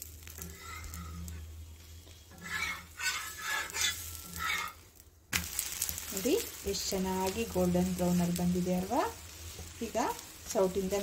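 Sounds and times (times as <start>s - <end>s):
faint sizzle: 0.0s - 11.0s
spatula scraping griddle: 0.2s - 6.0s.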